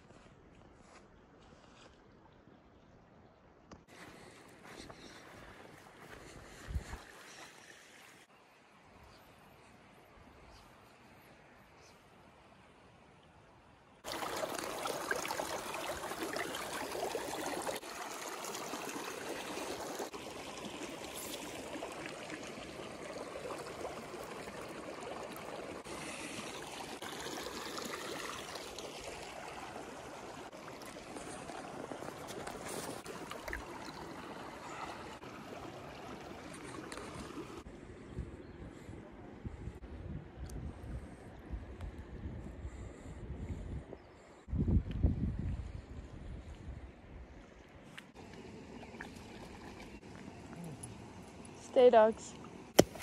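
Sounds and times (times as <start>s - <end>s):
stream flowing: 10.9s - 37.8s, 47.6s - 53.0s.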